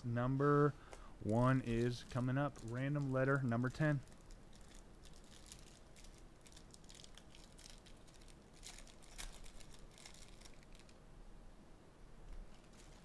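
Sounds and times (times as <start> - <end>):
foil wrapper crinkling: 1.3 - 11.0, 12.5 - 13.0.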